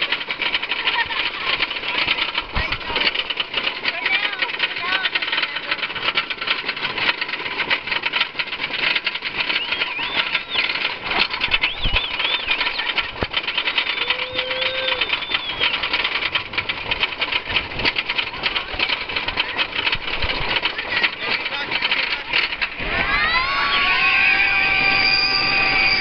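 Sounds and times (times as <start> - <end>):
roller coaster rattling: 0.0 - 26.0
riders screaming: 11.6 - 15.9, 22.8 - 26.0.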